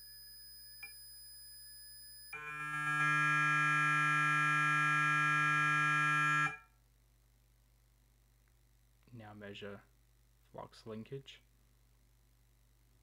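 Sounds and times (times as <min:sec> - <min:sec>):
electric motor electronic hum: 0:02.4 - 0:06.6.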